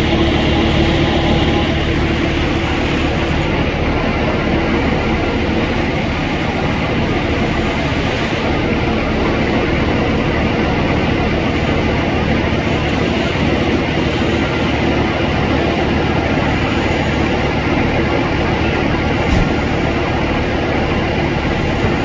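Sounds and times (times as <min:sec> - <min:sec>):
diesel engine droning: 0:00.0 - 0:22.0
fire hose spray rushing: 0:00.0 - 0:22.0.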